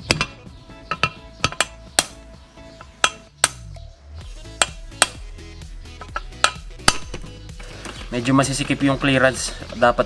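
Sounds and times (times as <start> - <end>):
hammer striking metal: 0.9 - 2.2, 3.0 - 3.7, 4.6 - 5.2, 6.4 - 7.3.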